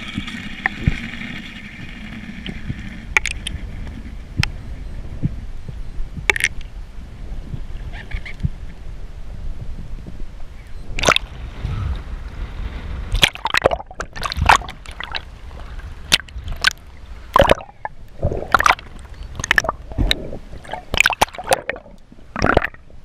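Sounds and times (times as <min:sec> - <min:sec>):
low rumble: 0:00.0 - 0:23.0
sharp splashes and knocks: 0:06.3 - 0:06.6, 0:11.0 - 0:11.4, 0:13.1 - 0:15.2, 0:16.1 - 0:17.7, 0:18.4 - 0:22.8
water sloshing and splashing: 0:11.0 - 0:11.4, 0:13.1 - 0:22.8.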